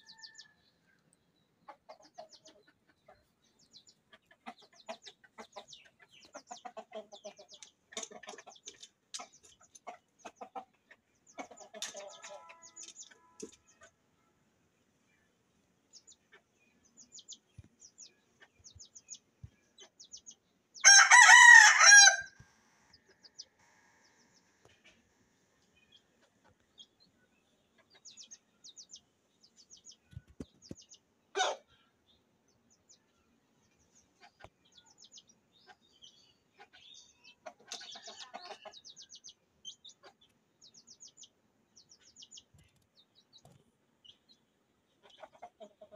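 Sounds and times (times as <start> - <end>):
hen clucking: 1.6 - 14.0, 29.8 - 31.8, 34.0 - 40.4, 44.9 - 45.9
rooster crowing: 20.8 - 22.3.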